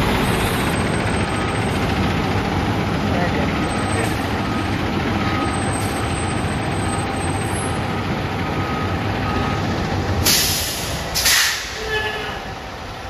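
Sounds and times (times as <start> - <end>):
diesel engine rumbling: 0.0 - 13.0
beeping warning tone: 3.5 - 9.8
air hiss burst: 10.2 - 11.8.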